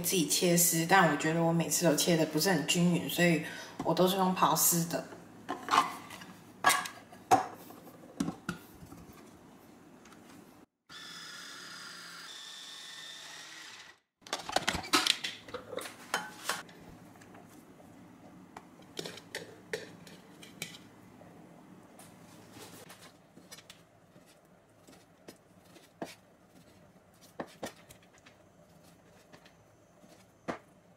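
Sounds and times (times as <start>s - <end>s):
food processor motor running: 10.9s - 14.1s.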